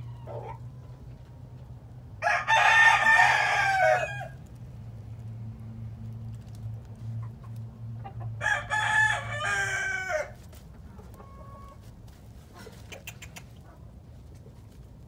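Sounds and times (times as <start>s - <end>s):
rooster crowing: 2.2s - 4.4s, 8.4s - 10.4s.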